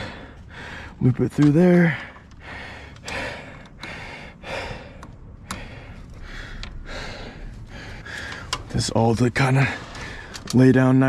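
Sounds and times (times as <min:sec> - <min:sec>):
man breathing hard: 0:00.0 - 0:01.0, 0:01.8 - 0:08.7
cables clicking and rustling: 0:00.0 - 0:04.2, 0:04.8 - 0:11.0.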